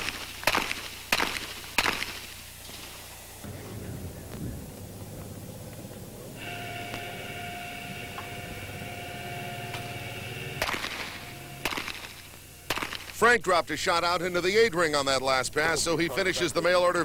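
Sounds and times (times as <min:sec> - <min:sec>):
handgun shot: 0:00.0 - 0:02.3, 0:10.6 - 0:13.2
mechanical whine: 0:00.0 - 0:17.0
low rumble: 0:03.4 - 0:12.7.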